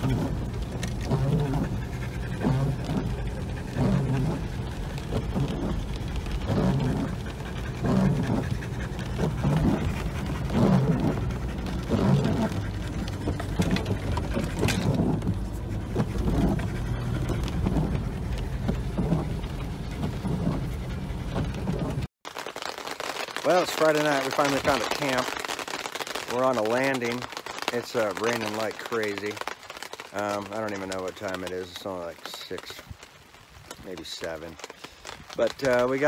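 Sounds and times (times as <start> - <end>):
dog panting hard: 0.0 - 22.0
vehicle engine and tyres drone: 0.0 - 22.1.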